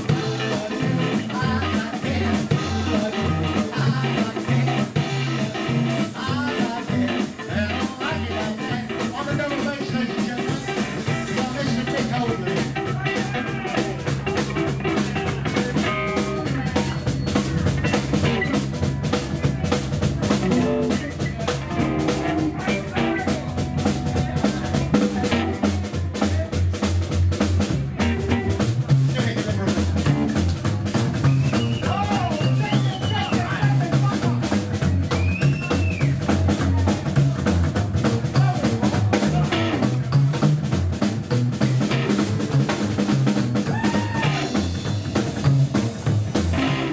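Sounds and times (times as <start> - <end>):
double bass notes: 0.0 - 46.9
rockabilly blues band playing: 0.0 - 46.9.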